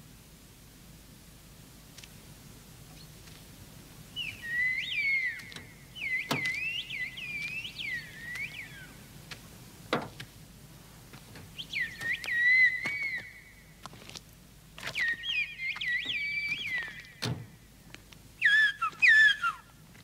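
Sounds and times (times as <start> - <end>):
man whistling: 11.6 - 13.4, 18.4 - 19.6.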